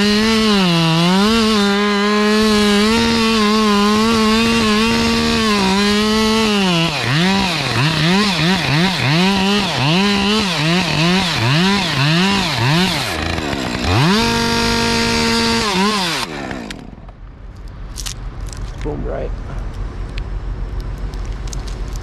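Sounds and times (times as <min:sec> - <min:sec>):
chainsaw cutting wood: 0:00.0 - 0:17.2.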